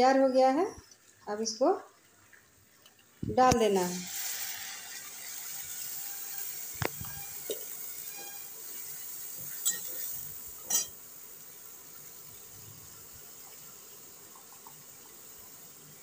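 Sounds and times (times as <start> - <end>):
paste sizzling in hot oil: 3.6 - 16.0
metal spatula scraping pan: 5.8 - 10.9.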